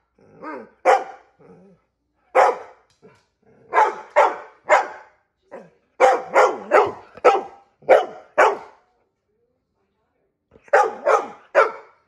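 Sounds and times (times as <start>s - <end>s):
dog barking: 0.5s - 1.3s, 2.3s - 2.8s, 3.7s - 8.8s, 10.6s - 12.0s.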